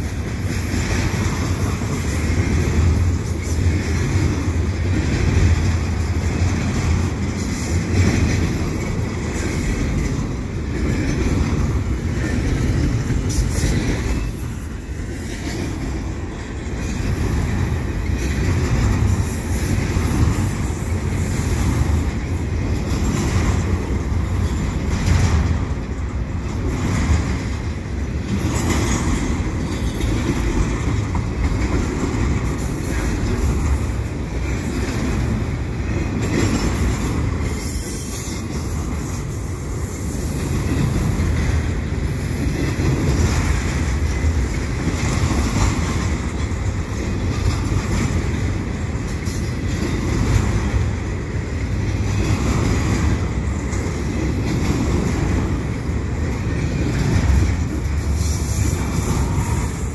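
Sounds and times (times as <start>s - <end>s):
train wheels rumbling on rail: 0.0s - 59.9s
wheels clacking over rail joints: 0.0s - 59.9s.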